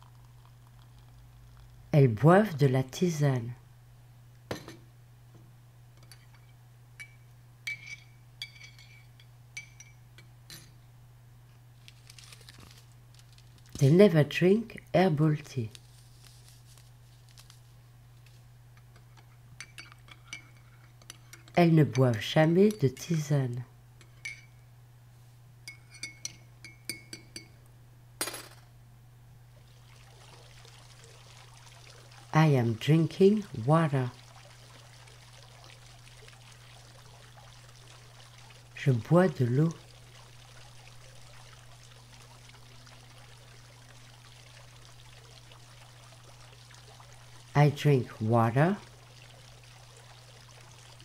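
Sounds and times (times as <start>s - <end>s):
liquid pouring: 0.0s - 1.9s, 11.9s - 13.9s, 29.4s - 51.0s
low steady hum: 0.0s - 51.0s
glass clinking: 7.0s - 10.8s, 24.0s - 24.6s, 25.6s - 27.6s
liquid splash: 29.5s - 51.0s.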